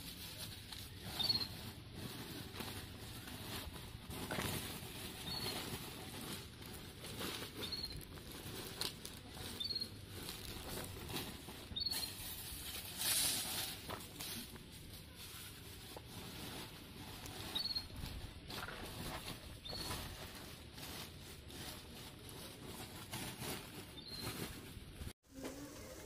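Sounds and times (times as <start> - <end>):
dry leaves and sacks rustling: 0.0 - 25.2
faint high chirp: 1.1 - 1.6, 11.8 - 12.2, 17.5 - 18.0.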